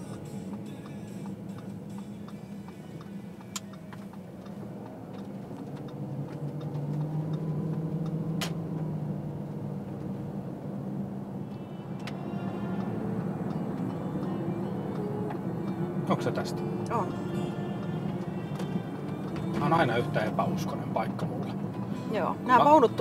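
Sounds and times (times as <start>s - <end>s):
car engine and road hum: 0.0s - 23.0s.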